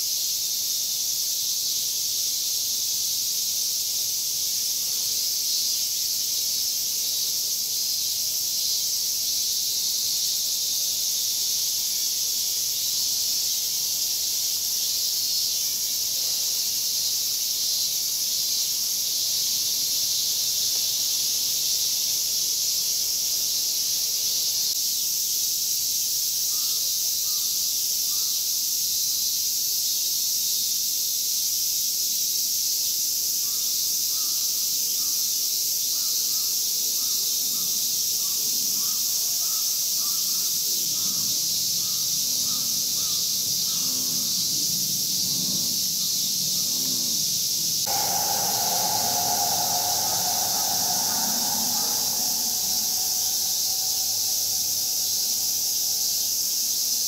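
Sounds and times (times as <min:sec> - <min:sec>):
cicadas chorus: 0:00.0 - 0:57.0.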